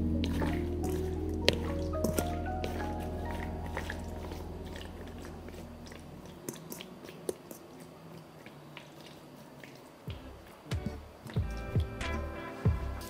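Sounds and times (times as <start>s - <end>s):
background music: 0.0s - 6.3s, 10.1s - 13.0s
hands kneading wet meat: 0.0s - 13.0s.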